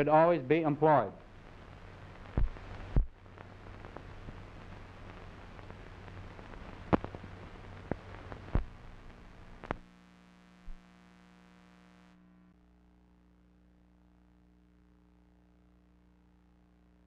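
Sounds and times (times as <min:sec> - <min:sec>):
film soundtrack hiss: 0:00.0 - 0:17.0
steady hum: 0:00.0 - 0:17.0
crackling pops: 0:01.2 - 0:10.0.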